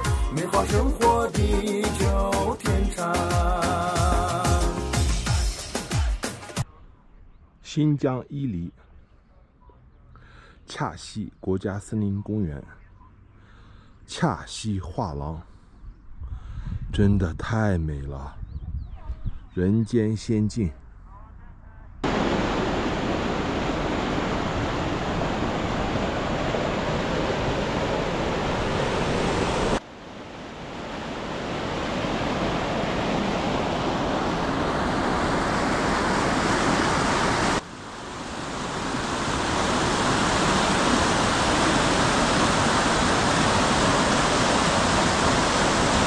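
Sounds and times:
river rushing over rocks: 22.0 - 46.0.

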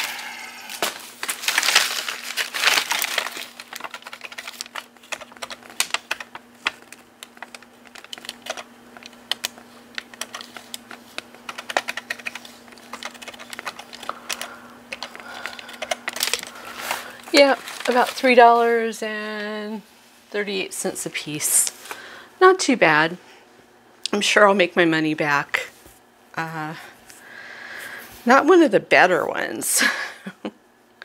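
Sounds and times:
rustling: 0.0 - 18.7
steady low hum: 0.0 - 31.0
keys clicking: 3.6 - 16.5.

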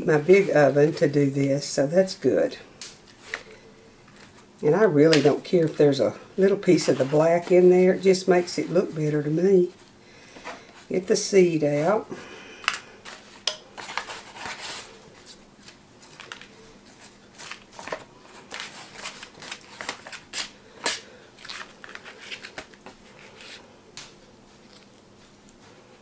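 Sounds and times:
paper bag rustling: 4.1 - 9.8, 13.0 - 23.6.

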